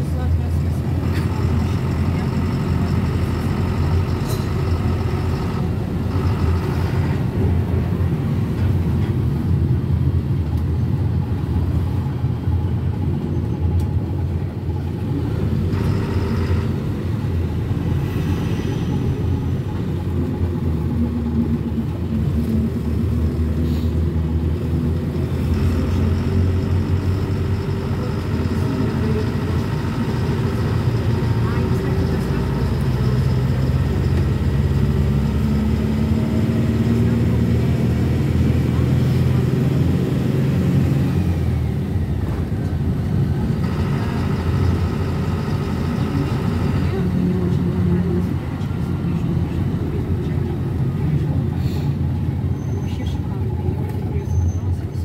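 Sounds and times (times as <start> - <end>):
minibus engine and road noise: 0.0 - 55.0.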